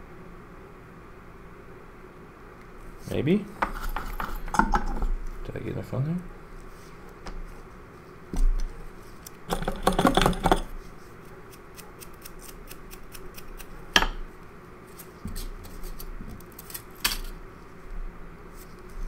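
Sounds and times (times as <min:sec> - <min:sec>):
hand tools clicking and rattling: 0:09.5 - 0:10.7.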